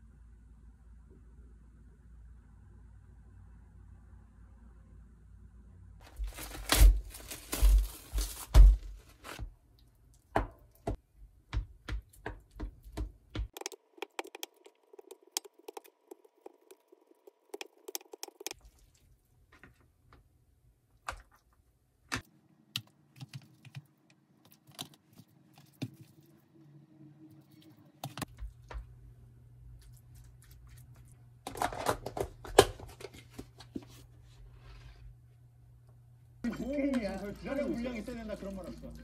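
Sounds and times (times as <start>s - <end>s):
plastic cling wrap crinkling: 6.0s - 9.4s.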